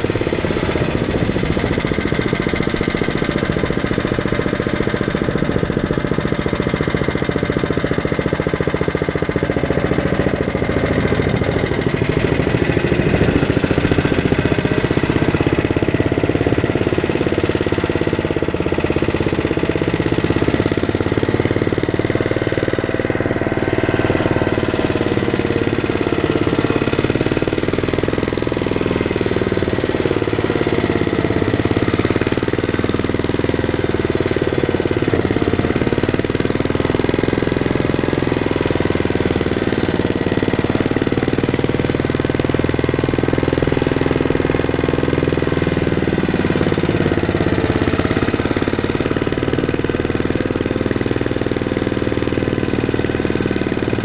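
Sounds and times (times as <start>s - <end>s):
walking tractor engine pounding: 0.0s - 54.0s.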